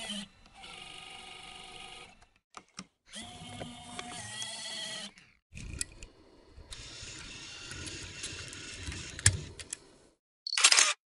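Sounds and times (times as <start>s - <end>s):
small motor whirring: 0.0s - 2.3s, 6.7s - 9.6s
camera click: 10.5s - 11.0s.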